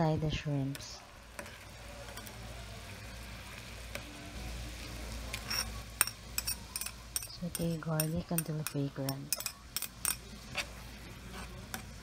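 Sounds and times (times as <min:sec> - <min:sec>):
metal spoon clinking on bowl: 0:05.5 - 0:10.2.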